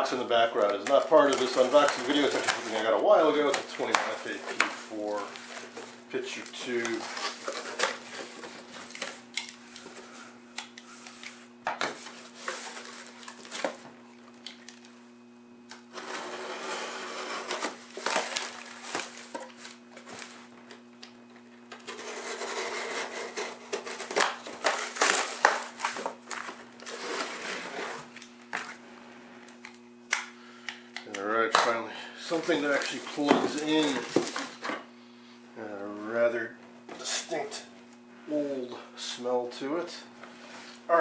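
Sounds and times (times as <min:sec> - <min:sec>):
cardboard scraping and rustling: 0:00.9 - 0:06.0, 0:11.9 - 0:13.8, 0:15.9 - 0:20.5, 0:21.8 - 0:28.8.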